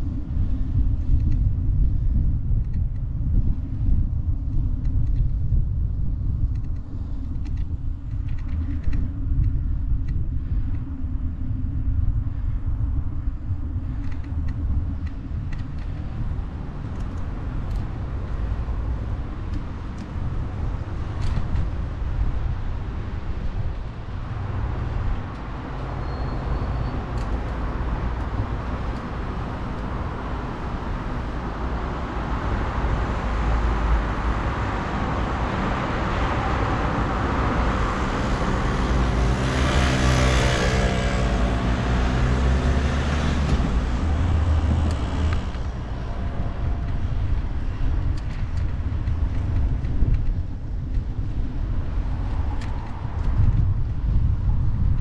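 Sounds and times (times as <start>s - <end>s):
road traffic rumble: 0.0s - 55.0s
motor vehicle passing close: 32.0s - 48.6s.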